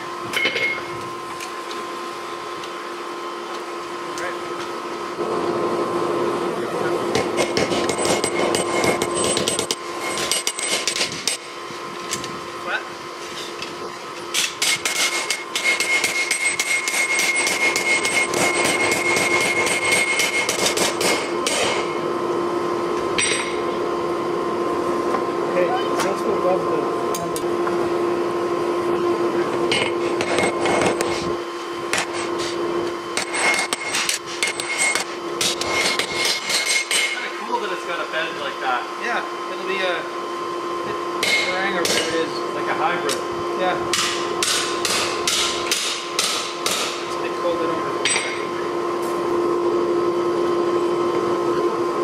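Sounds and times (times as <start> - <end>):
steady hum: 0.0 - 52.0
hammer striking steel on anvil: 0.3 - 0.9, 7.1 - 11.4, 14.3 - 22.0, 23.2 - 23.6, 31.9 - 32.4, 33.1 - 37.2, 41.2 - 42.2, 43.9 - 47.1, 48.0 - 48.5.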